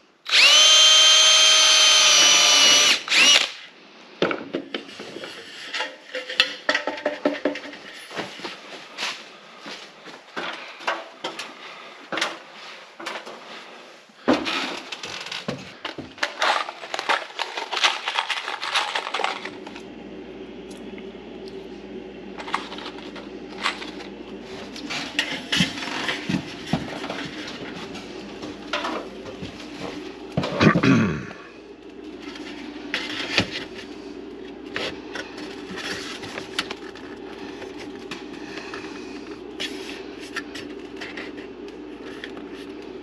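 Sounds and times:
steady low hum: 18.4s - 43.0s.

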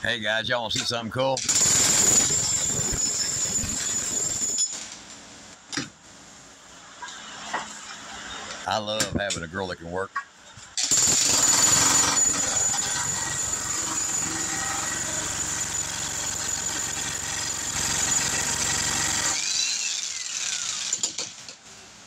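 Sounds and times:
jackhammer hammering concrete: 1.5s - 4.6s, 10.8s - 19.5s.

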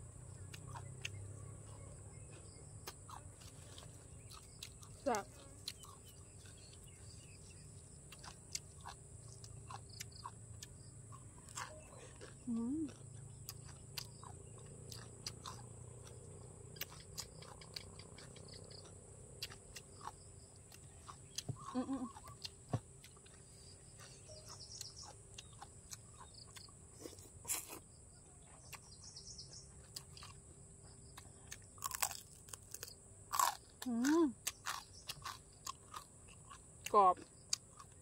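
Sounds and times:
crunchy bites: 0.0s - 27.8s, 28.5s - 38.0s
chewing with mouth clicks: 0.1s - 27.8s, 28.4s - 38.0s
faint bird chirps: 16.7s - 18.9s, 23.2s - 30.3s.

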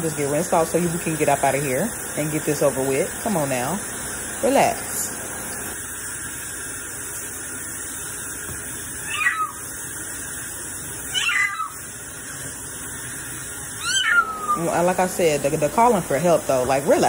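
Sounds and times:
kitchen faucet running: 0.0s - 17.0s
cat meowing loudly: 9.1s - 9.6s, 11.1s - 11.8s, 13.8s - 14.6s.

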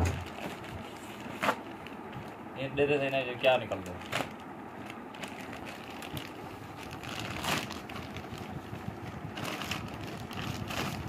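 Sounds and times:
plastic mailer bag crinkling: 0.2s - 11.0s.

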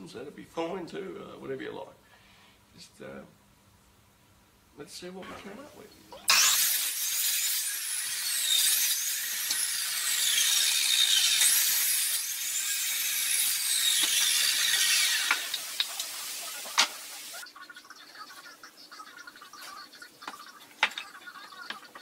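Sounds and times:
mitre saw cutting wood: 6.3s - 17.4s.

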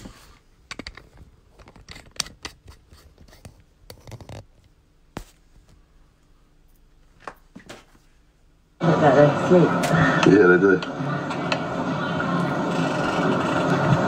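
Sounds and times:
handling clicks and scratches: 0.7s - 4.7s.

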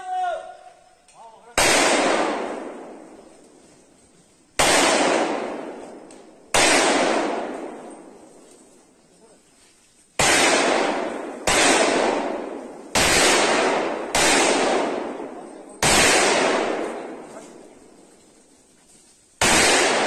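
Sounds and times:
gunshots with echo: 1.6s - 3.3s, 4.6s - 8.3s, 10.2s - 18.0s, 19.4s - 20.0s.

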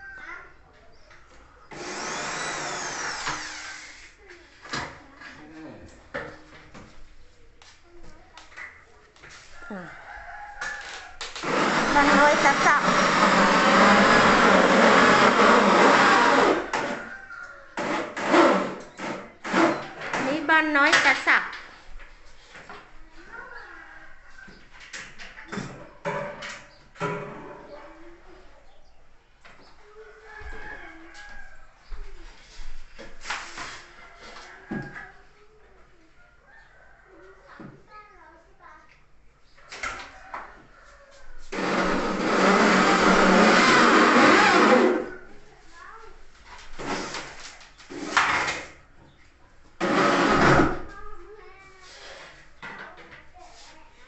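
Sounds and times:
power tool motor running: 1.7s - 4.0s, 11.4s - 17.0s, 41.5s - 45.1s.

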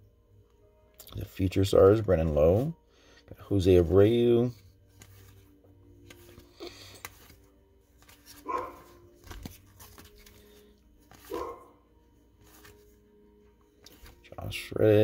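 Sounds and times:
trading cards rustling: 3.7s - 15.0s
dog barking: 8.4s - 9.0s, 11.3s - 11.8s.

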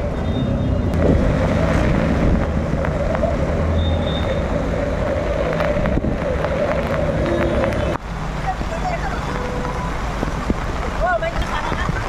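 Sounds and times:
vehicles driving: 0.0s - 12.0s
water washing: 1.0s - 12.0s.

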